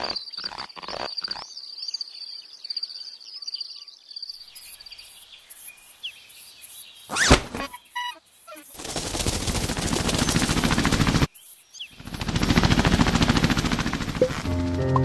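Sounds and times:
rattling butterfly wingbeats: 0:08.6 - 0:11.3, 0:12.0 - 0:14.5.

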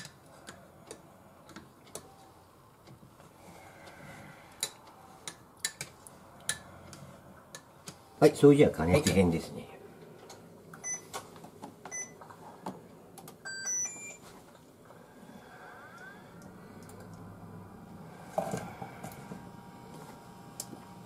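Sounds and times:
induction hob humming: 0:11.8 - 0:21.0
control panel beeping: 0:13.4 - 0:14.2.

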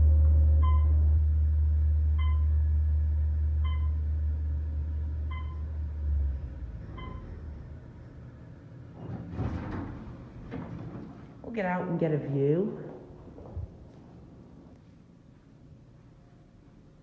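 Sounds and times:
elevator motor humming: 0:00.0 - 0:11.4
short electronic beeps: 0:02.2 - 0:02.5, 0:03.6 - 0:04.0, 0:05.3 - 0:05.6
elevator doors rattling: 0:04.9 - 0:12.0.

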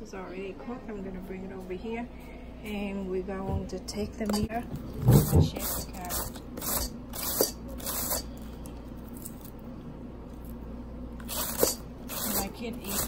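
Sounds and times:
shredder blade scraping cabbage: 0:04.9 - 0:08.4, 0:11.2 - 0:13.0.

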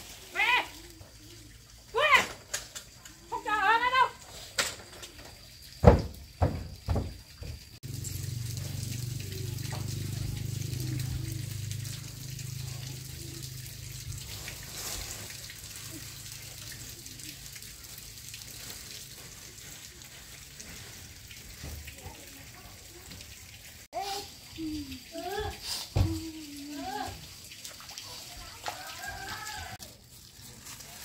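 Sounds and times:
water running from tap: 0:00.0 - 0:31.0.

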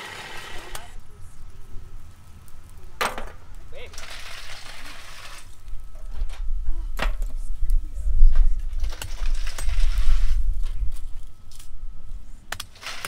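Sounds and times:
charge hissing and rattling into furnace: 0:00.0 - 0:01.0, 0:01.6 - 0:07.5, 0:08.2 - 0:11.7, 0:12.5 - 0:13.0
uneven low rumble: 0:04.8 - 0:12.5.

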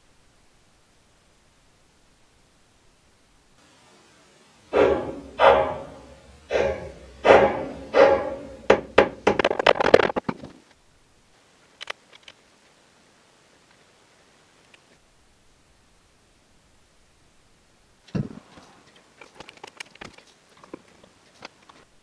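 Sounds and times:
loud ringing metal knocks: 0:04.7 - 0:09.6
sharp clicks and rattles: 0:04.8 - 0:10.6, 0:18.5 - 0:21.8.

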